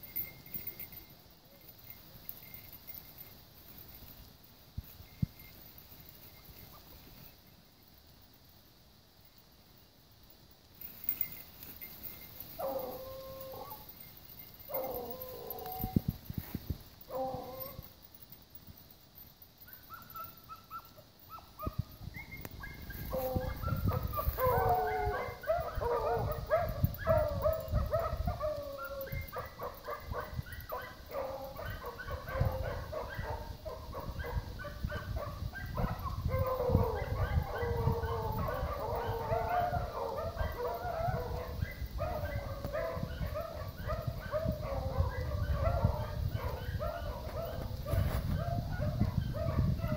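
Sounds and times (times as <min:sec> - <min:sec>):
hounds baying: 0:11.0 - 0:18.0, 0:19.6 - 0:49.9.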